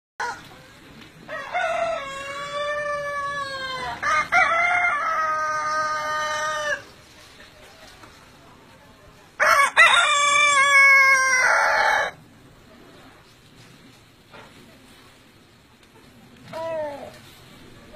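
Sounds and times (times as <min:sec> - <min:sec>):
rooster crowing: 0:01.3 - 0:06.9, 0:09.4 - 0:12.2.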